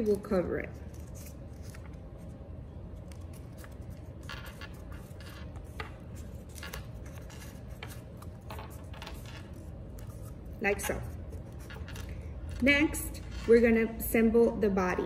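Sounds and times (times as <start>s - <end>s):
low room hum: 0.0s - 15.0s.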